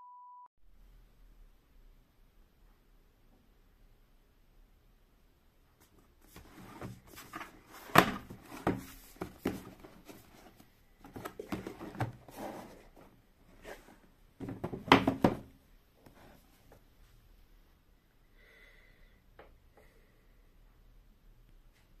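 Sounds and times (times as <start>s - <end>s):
cardboard box rubbing and scraping: 11.5s - 13.0s.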